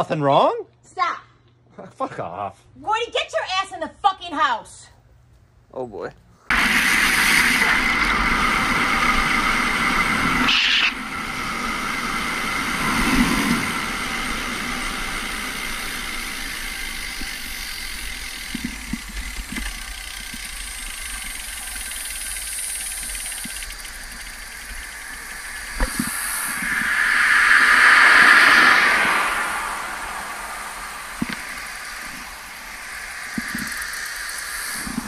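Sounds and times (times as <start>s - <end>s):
road noise: 6.5s - 35.0s
rushing wind: 6.5s - 35.0s
car approaching: 11.0s - 34.5s.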